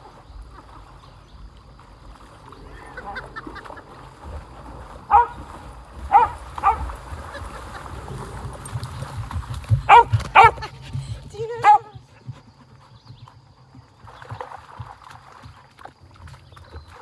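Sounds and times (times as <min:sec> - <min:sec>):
low rumble: 0:01.4 - 0:11.4.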